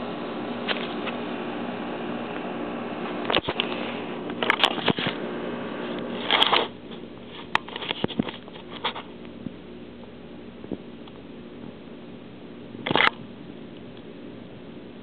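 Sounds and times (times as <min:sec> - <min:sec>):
camera handling rustling: 0:03.3 - 0:05.2, 0:06.2 - 0:09.1.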